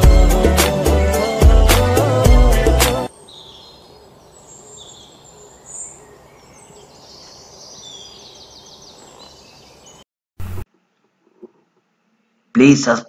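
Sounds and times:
birds chirping: 2.0s - 10.1s
bird trill: 3.1s - 10.0s.

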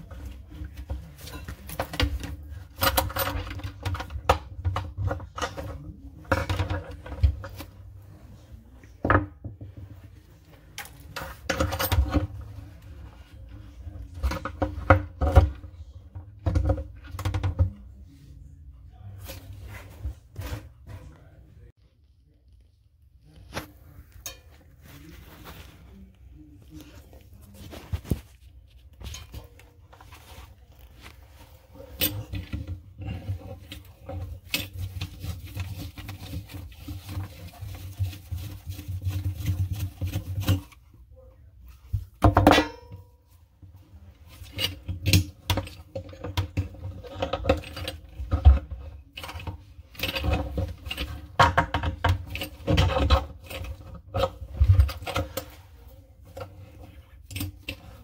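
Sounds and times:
tools clinking and knocking: 0.1s - 7.7s, 10.8s - 12.5s, 31.8s - 36.3s.

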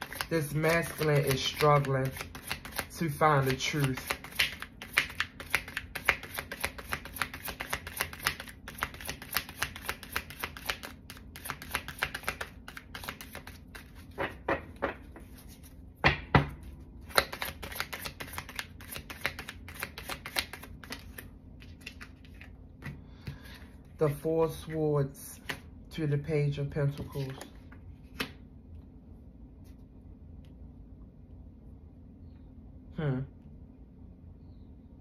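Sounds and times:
cards being shuffled: 0.0s - 14.4s, 15.1s - 15.8s, 16.7s - 24.2s, 25.4s - 25.6s, 26.9s - 28.4s.

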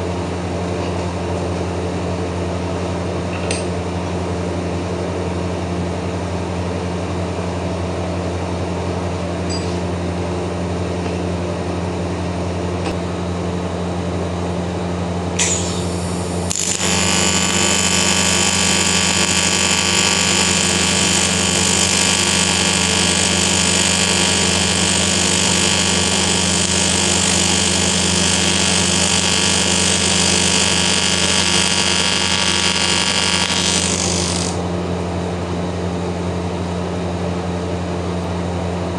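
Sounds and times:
steady low hum: 11.4s - 36.1s
welding arc buzzing: 15.4s - 34.6s
welding arc crackle: 15.4s - 34.6s.

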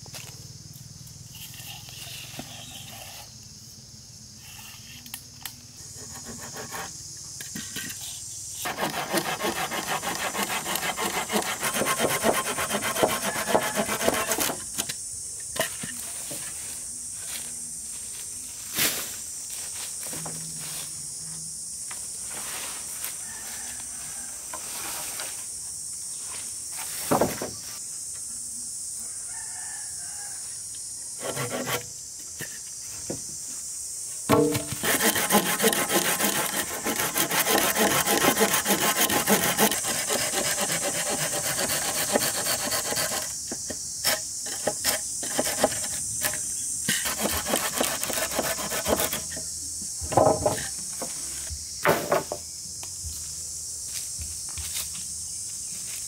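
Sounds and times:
saw cutting through wood: 8.6s - 14.6s, 31.2s - 31.8s, 34.3s - 43.3s, 47.0s - 49.3s
steady high hiss: 14.4s - 56.0s
sharp knocks: 34.3s - 35.0s.

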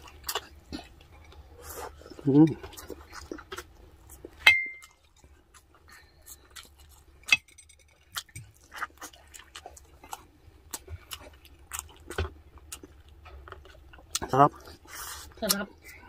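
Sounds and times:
man chewing meat: 0.0s - 16.0s
clink against plate: 4.5s - 4.9s.

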